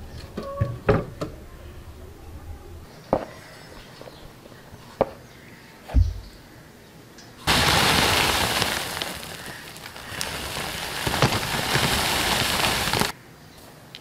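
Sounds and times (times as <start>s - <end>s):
bread crumbs pouring onto flour: 7.5s - 13.1s.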